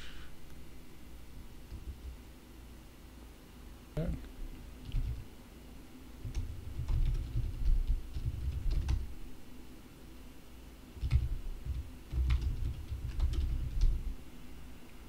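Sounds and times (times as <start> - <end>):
typing on computer keyboard: 4.8 - 5.2, 6.2 - 9.1, 11.0 - 14.1.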